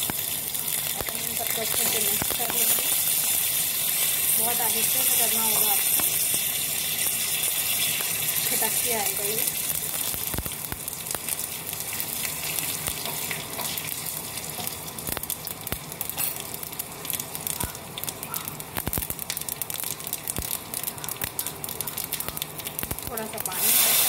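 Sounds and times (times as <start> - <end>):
spices sizzling in hot oil: 0.0 - 24.0
mustard seeds popping: 0.9 - 3.2, 3.9 - 6.5, 17.1 - 23.8.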